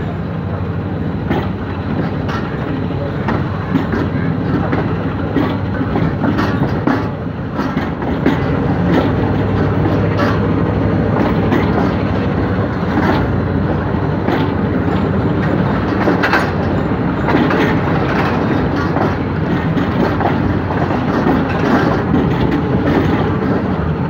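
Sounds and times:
train rumble: 0.0 - 24.0
wheels clacking over rail joints: 0.1 - 24.0.

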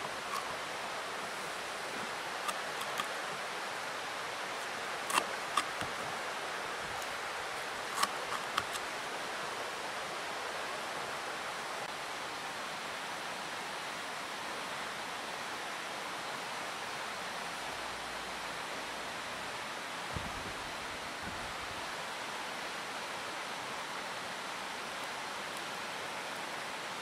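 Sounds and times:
steady hiss: 0.0 - 27.0.

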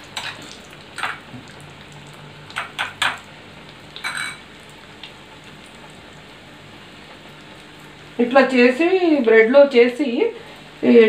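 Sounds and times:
food deep-frying in oil: 0.0 - 11.0
dishes and fork clinking: 4.0 - 4.5.

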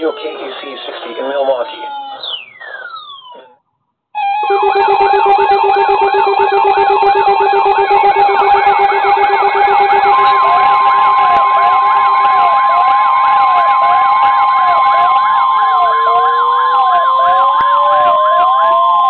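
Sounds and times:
warbling electronic siren: 0.0 - 3.6, 4.2 - 19.0
yelping electronic siren: 0.0 - 3.6, 4.2 - 19.0
steady single-pitch alert tone: 4.2 - 15.4
rising wail: 4.2 - 19.0.

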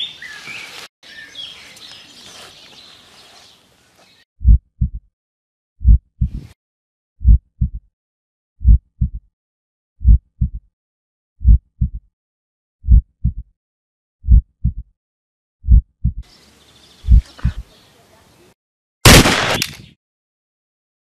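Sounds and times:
heartbeat double thump: 4.4 - 5.1, 5.8 - 6.6, 7.2 - 7.9, 8.6 - 9.3, 10.0 - 10.7, 11.4 - 12.1, 12.8 - 13.5, 14.2 - 14.9, 15.6 - 16.2
faint outdoor hiss: 16.3 - 18.5.

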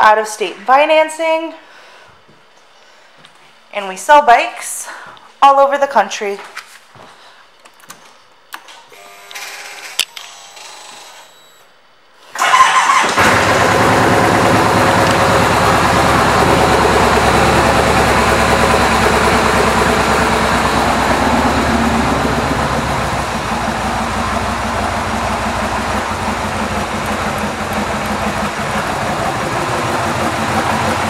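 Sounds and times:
motorcycle engine starting and idling: 12.4 - 31.0.

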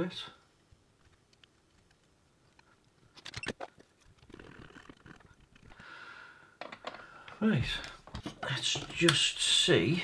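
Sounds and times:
desoldering braid scratching and crackling: 0.9 - 5.8.

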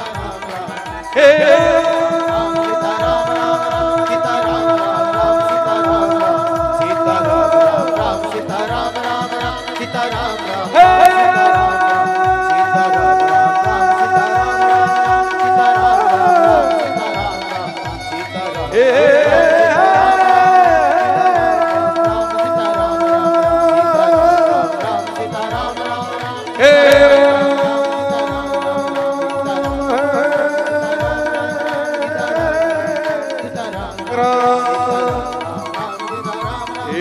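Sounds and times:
hand drum beat: 0.0 - 37.0
man singing long notes: 0.0 - 37.0.

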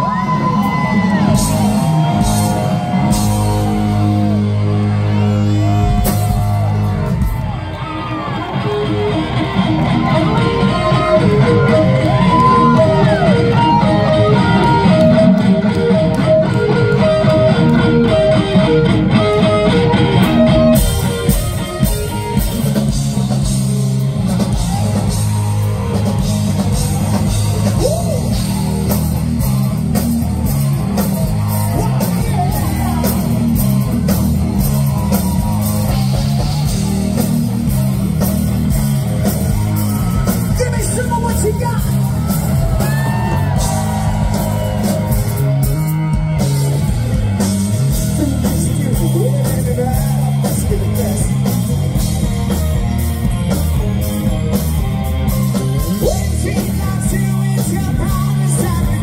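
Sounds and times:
electric guitar: 0.0 - 59.0
rock band playing: 0.0 - 59.0
person singing: 48.0 - 51.6, 55.8 - 59.0.

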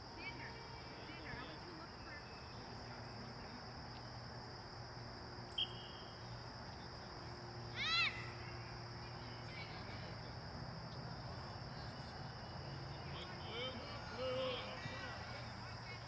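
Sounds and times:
outdoor field ambience: 0.0 - 16.0
faint high whine: 5.4 - 16.0
child squealing: 7.8 - 8.3.

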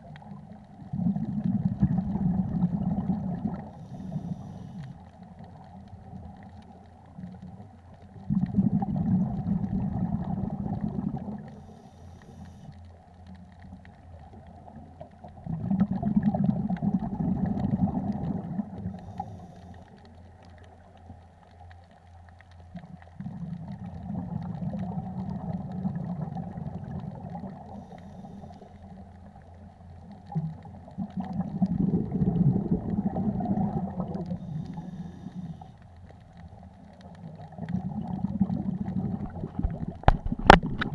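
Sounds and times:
diver exhaling rumbling bubbles: 0.8 - 4.4, 8.2 - 11.6, 15.3 - 19.4, 23.2 - 27.9, 30.3 - 35.5, 37.2 - 40.9.

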